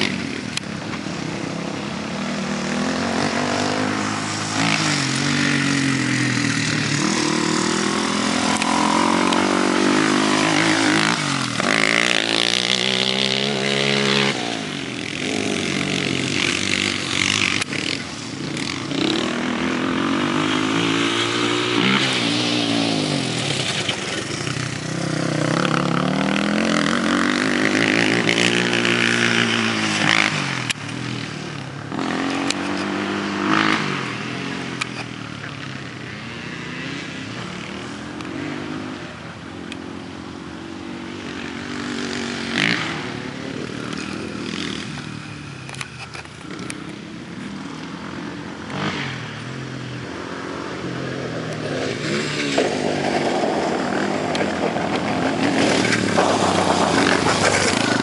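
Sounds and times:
atv engine revving: 0.0 - 39.9, 40.6 - 58.0.

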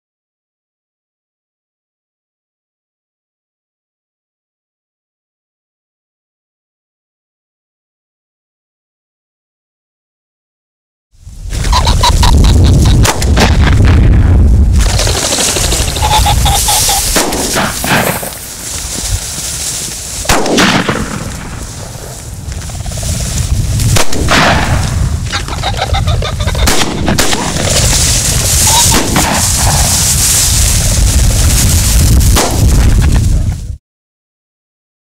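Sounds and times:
wind rumble on microphone: 11.2 - 20.3, 21.0 - 33.8
shotgun shots: 13.0 - 14.0, 17.0 - 18.4, 20.2 - 22.1, 23.9 - 25.1, 26.6 - 30.0, 32.2 - 32.9.

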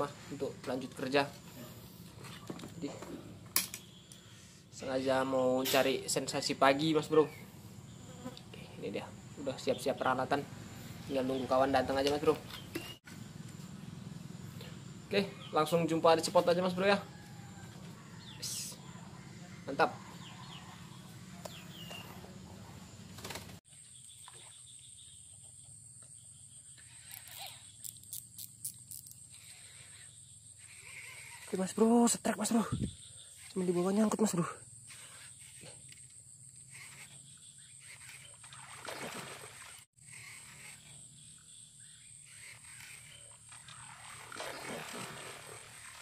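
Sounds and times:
bird chirps: 9.4 - 13.0, 18.0 - 22.3
frogs croaking: 23.7 - 46.0.

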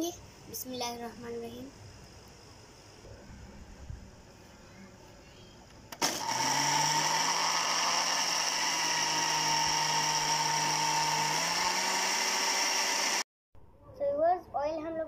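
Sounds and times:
blender motor running: 6.0 - 13.3.

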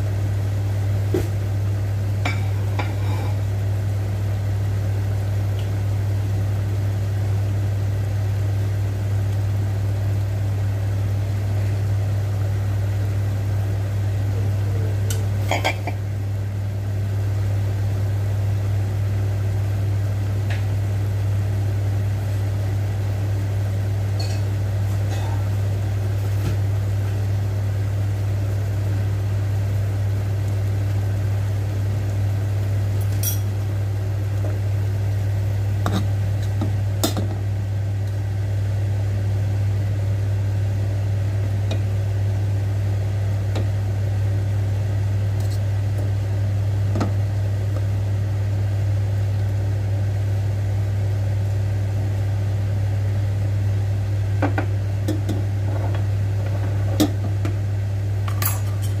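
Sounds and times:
steady low hum: 0.0 - 59.0
water boiling in a pot: 0.0 - 59.0.

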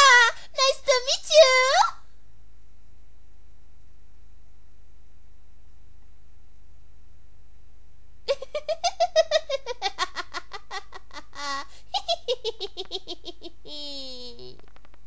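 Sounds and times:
woman giggling: 8.3 - 14.6.

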